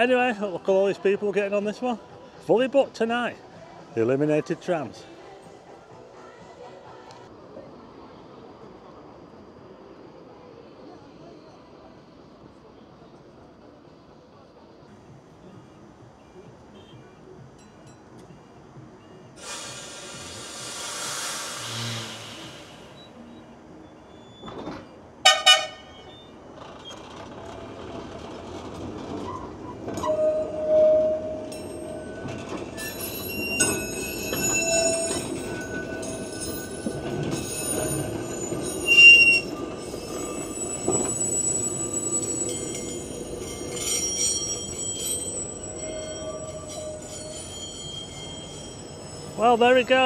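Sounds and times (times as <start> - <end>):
tram running past: 0.0 - 50.0
steel wheels squealing on rails: 16.7 - 50.0
tram signal: 25.2 - 26.3, 29.2 - 50.0.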